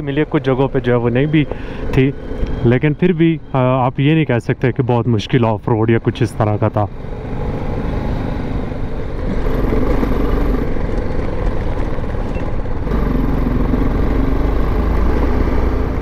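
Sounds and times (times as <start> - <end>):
wind and road noise: 0.0 - 16.0
motorcycle engine running: 6.9 - 16.0.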